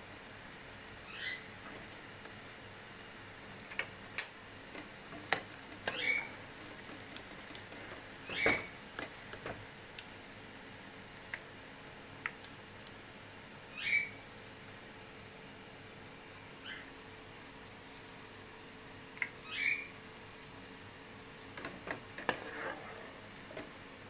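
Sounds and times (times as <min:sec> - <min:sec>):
onions frying: 0:00.0 - 0:24.0
spatula scraping a pot: 0:04.7 - 0:08.7, 0:21.8 - 0:23.7.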